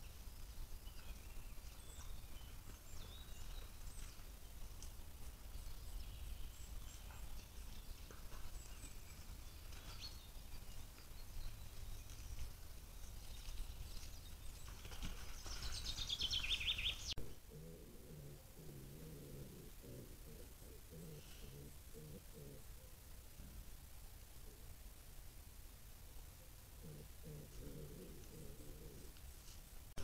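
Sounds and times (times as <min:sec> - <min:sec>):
loud songbird song: 0:00.0 - 0:22.6
faint bird chirps: 0:00.0 - 0:23.7, 0:26.1 - 0:29.8.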